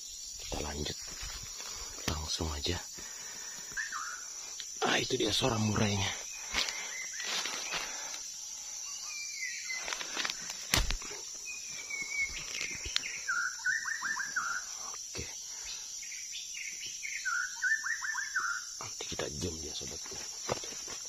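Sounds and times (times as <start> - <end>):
high insect drone: 0.0 - 21.0
bird singing whistled notes: 3.8 - 4.3, 8.8 - 9.9, 11.4 - 14.9, 15.6 - 18.7.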